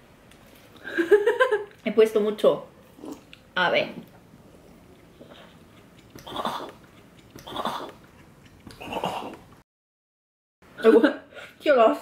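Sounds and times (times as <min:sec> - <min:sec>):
slurping noodles: 0:05.1 - 0:09.4.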